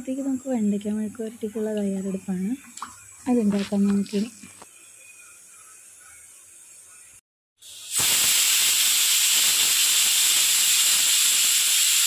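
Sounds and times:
pressure cooker hissing steam: 7.6s - 12.0s.

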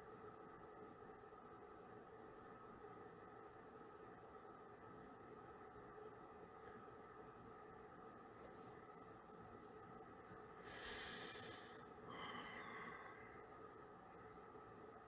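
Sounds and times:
room hum: 0.0s - 15.0s
breath close to microphone: 10.6s - 13.4s.

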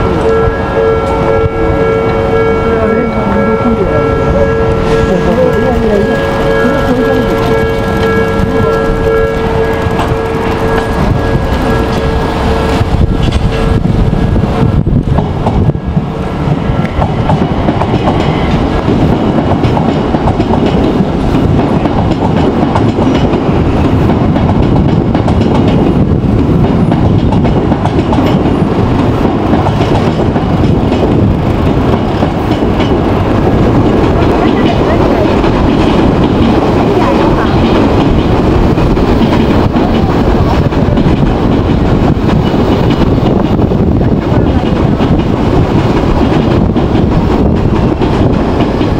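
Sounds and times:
level-crossing alarm ringing: 0.0s - 12.8s
train wheels rumbling on track: 0.0s - 48.9s.

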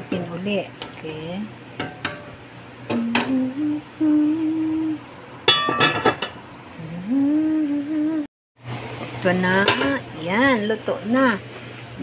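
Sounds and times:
person humming: 2.9s - 5.0s, 6.8s - 8.3s
pot lid clinking: 5.5s - 6.4s.

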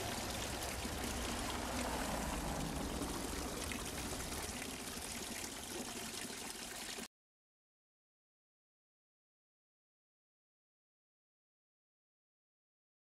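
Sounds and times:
fountain water splashing on stone: 0.0s - 7.1s.

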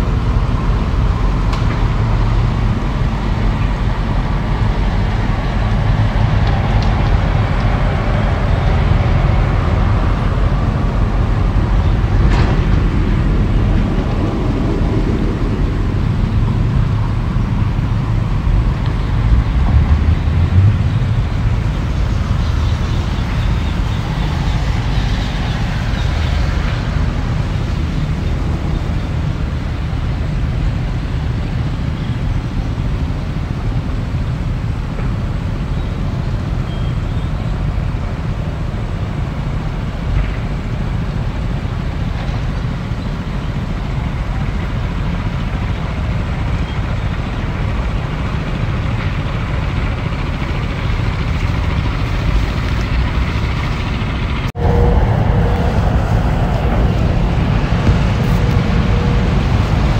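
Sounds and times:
diesel engine rumbling: 0.0s - 59.9s.

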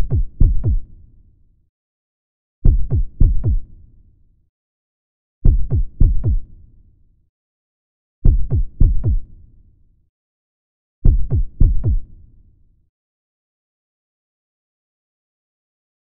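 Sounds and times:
synthesized heartbeat thumps: 0.0s - 0.8s, 2.7s - 3.6s, 5.5s - 6.4s, 8.3s - 9.2s, 11.1s - 12.0s.

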